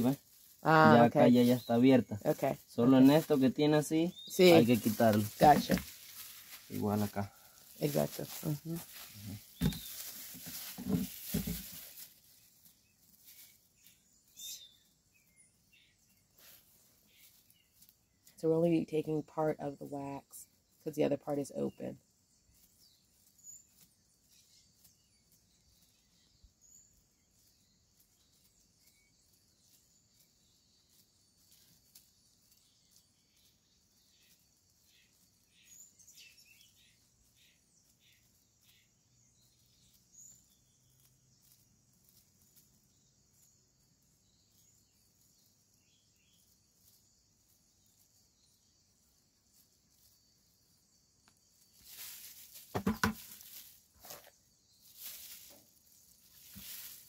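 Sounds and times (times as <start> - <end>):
loud rustle: 4.5 - 13.9, 51.8 - 57.0.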